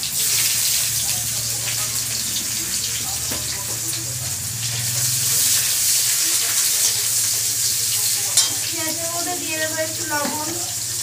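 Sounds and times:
onion sizzling in hot oil: 0.0 - 11.0
metal spatula stirring: 8.3 - 8.7.

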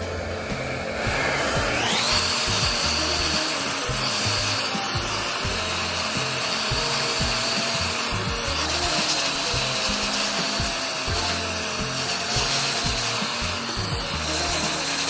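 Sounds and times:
hot-air blower motor whine: 0.0 - 15.0.

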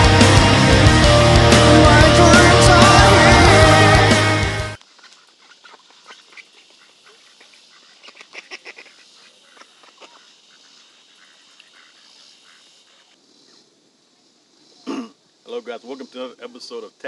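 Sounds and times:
waterfowl calling: 4.9 - 13.2.

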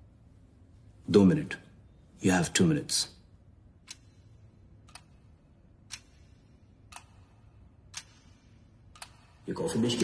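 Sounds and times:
clock ticking faintly: 3.4 - 10.0.

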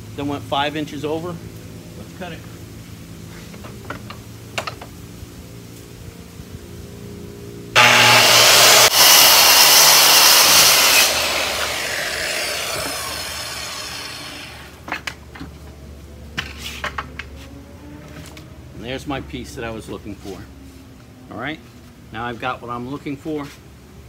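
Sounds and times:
circular saw cutting plywood: 7.8 - 15.2.

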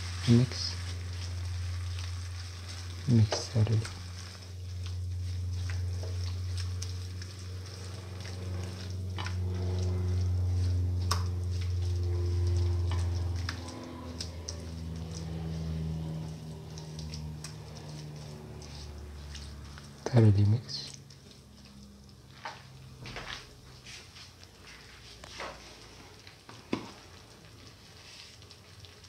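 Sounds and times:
meat sizzling in a frying pan: 0.0 - 20.0
steady low hum: 0.0 - 28.6.

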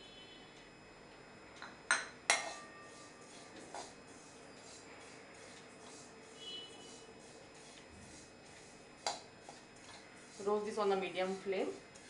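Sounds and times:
metal spoon clinking in pan: 1.9 - 2.8.

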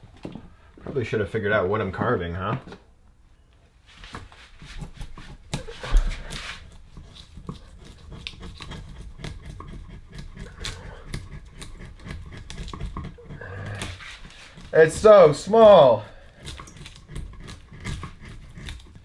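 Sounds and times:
screwdriver scraping into log: 4.2 - 19.0.

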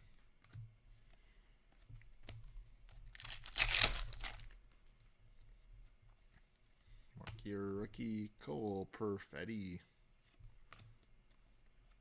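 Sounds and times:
foil pack tearing open: 3.1 - 4.5.

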